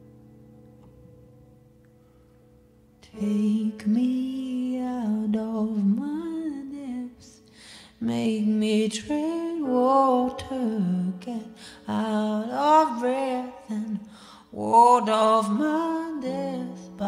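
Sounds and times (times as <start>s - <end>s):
woman singing wavering melody: 3.0s - 7.4s, 8.0s - 17.0s.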